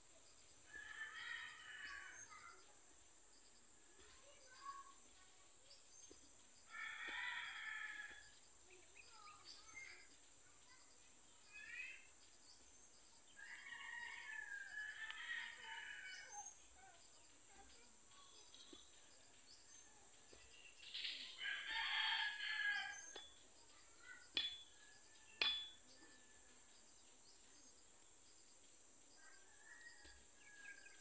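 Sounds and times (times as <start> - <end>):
rooster crowing: 0.7 - 2.2, 6.7 - 8.2, 13.4 - 16.3, 21.4 - 23.3, 29.2 - 31.0
sharp knocks: 24.3 - 24.7, 25.4 - 25.8.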